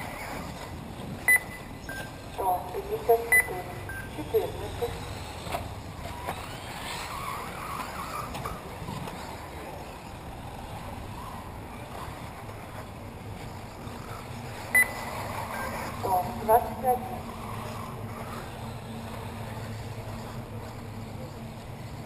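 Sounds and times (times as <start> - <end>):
rc car motor whines: 0.0 - 22.0.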